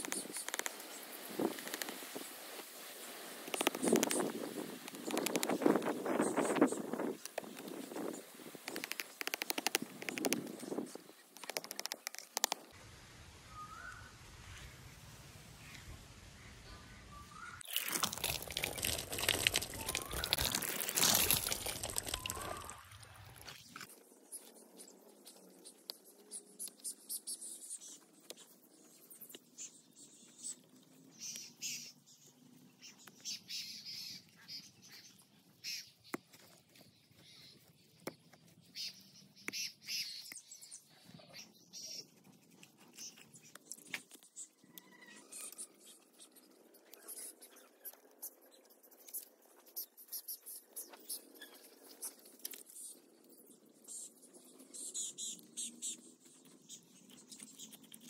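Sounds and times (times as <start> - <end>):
hands working wet mud: 17.6 - 23.8.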